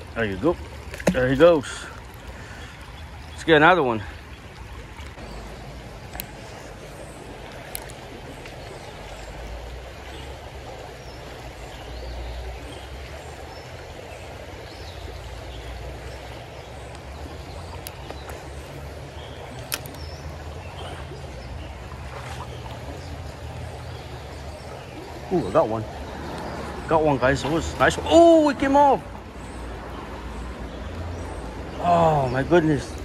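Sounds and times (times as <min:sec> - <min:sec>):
creek water running over riffles: 0:00.0 - 0:33.0
sharp clicks: 0:19.6 - 0:20.0.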